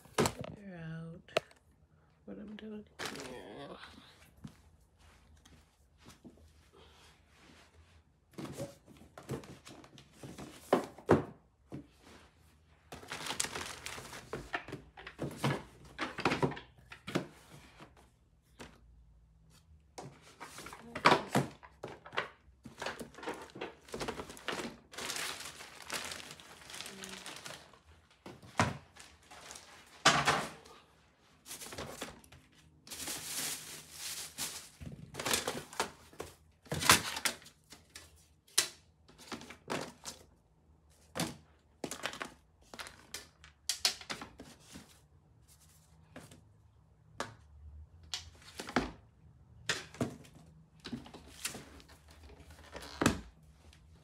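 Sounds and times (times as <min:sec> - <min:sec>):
paper and plastic bag rustling: 0:03.0 - 0:03.5, 0:12.9 - 0:15.6, 0:22.1 - 0:30.7, 0:31.4 - 0:37.6.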